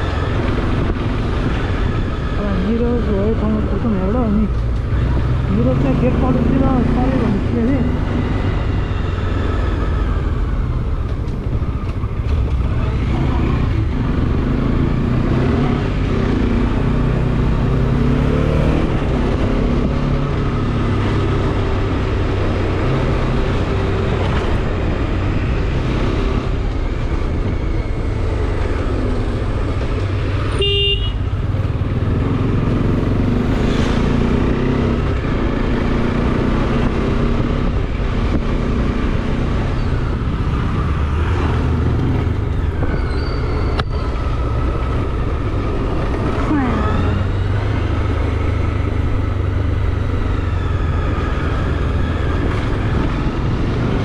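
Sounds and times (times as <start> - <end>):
vehicle horn toot: 30.5 - 31.3.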